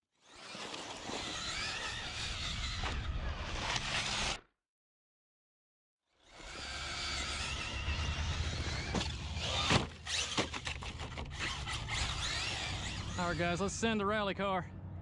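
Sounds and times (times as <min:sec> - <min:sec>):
electric motor whine: 0:06.3 - 0:13.4
toy car crashing thumps: 0:08.8 - 0:12.0.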